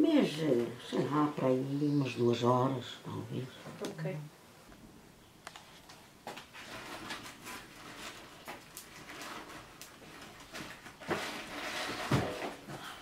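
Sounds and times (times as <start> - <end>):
fire crackling: 4.7 - 12.8.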